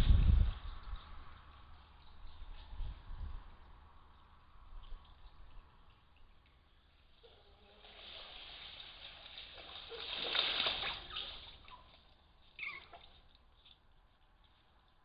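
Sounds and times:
otters splashing: 3.6s - 15.0s.

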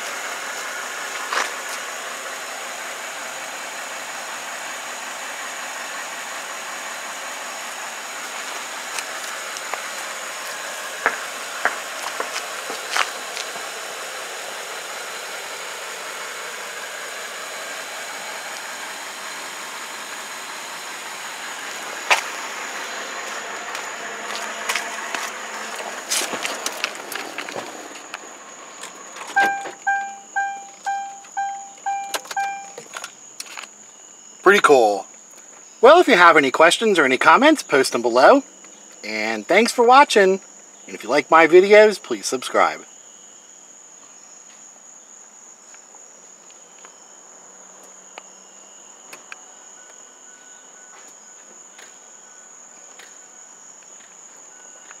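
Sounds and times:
crickets trilling: 0.0s - 55.0s
car warning chime dinging: 29.3s - 32.9s.

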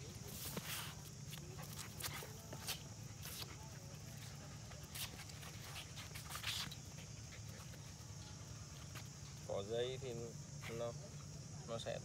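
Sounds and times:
footsteps scuffing on concrete: 0.2s - 7.9s.

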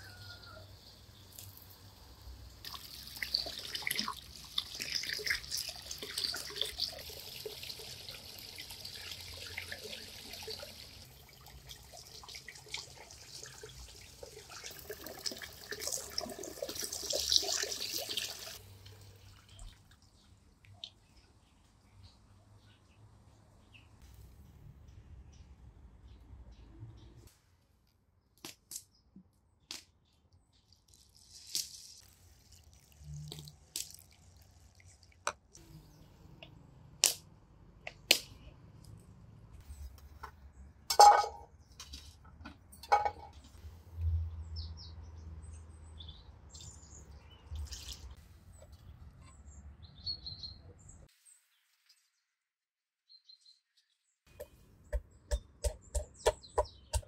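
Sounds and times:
birds chirping: 53.1s - 57.0s.

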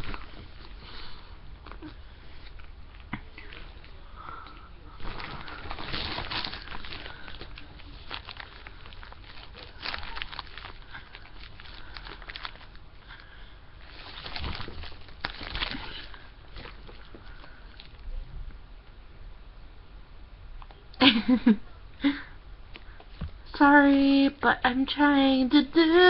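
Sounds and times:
rustling: 0.0s - 18.6s
steady low hum: 0.0s - 26.0s.

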